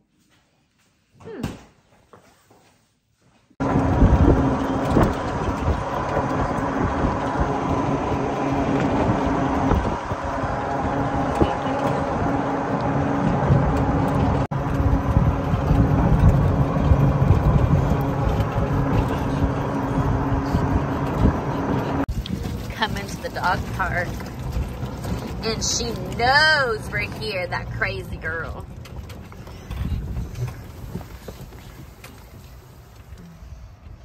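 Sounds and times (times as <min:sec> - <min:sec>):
golf cart hum: 0:03.6 - 0:34.0
wind buffeting microphone: 0:03.6 - 0:34.0
tyre rumble on pavement: 0:28.5 - 0:33.2.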